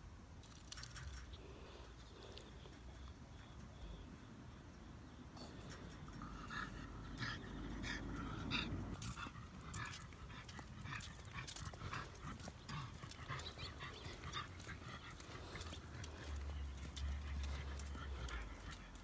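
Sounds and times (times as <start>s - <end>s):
dog panting: 5.4s - 19.0s.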